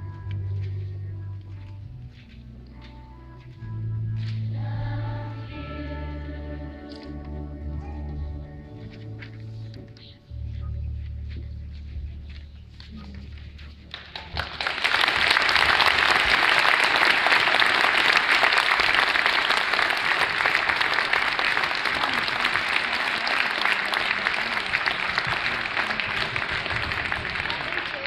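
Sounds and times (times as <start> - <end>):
audience applauding: 13.9 - 28.0.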